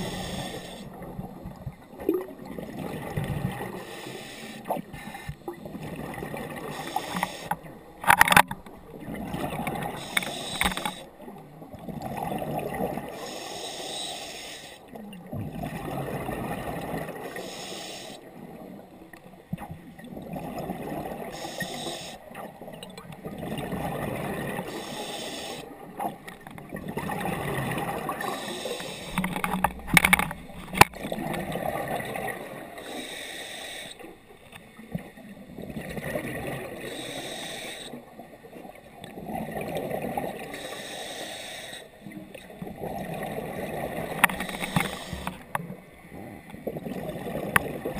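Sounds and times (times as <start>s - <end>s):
regulator hiss on inhale: 0.0s - 1.0s, 3.7s - 5.5s, 6.6s - 7.7s, 9.9s - 11.2s, 13.1s - 14.9s, 17.2s - 18.3s, 21.3s - 22.3s, 24.6s - 25.7s, 28.2s - 29.5s, 32.7s - 34.1s, 36.8s - 38.1s, 40.5s - 42.0s, 44.2s - 45.6s
sharp clicks: 10.1s - 11.0s.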